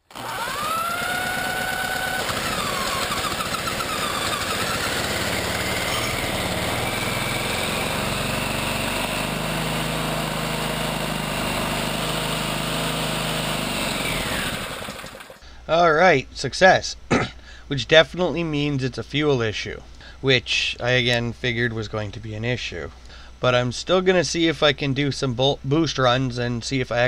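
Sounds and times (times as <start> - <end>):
small engine running: 0.0 - 15.4
supercharger whine: 0.0 - 15.4.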